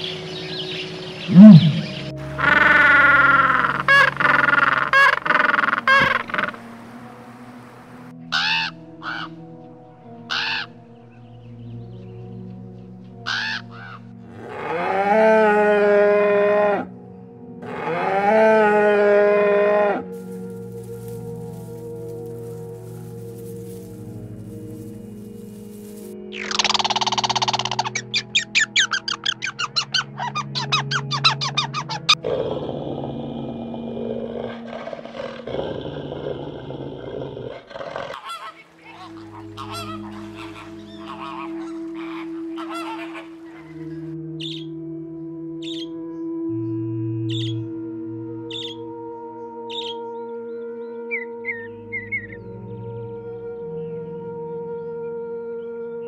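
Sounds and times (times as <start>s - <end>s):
steady low drone: 0.0s - 14.4s, 18.8s - 36.9s, 43.2s - 56.0s
cow mooing: 1.3s - 6.6s, 14.3s - 16.9s, 17.6s - 21.0s
flamingos honking: 1.3s - 9.4s, 10.3s - 10.7s, 13.2s - 14.0s, 20.2s - 32.2s, 38.1s - 44.7s
dense noisy hiss: 6.2s - 8.1s.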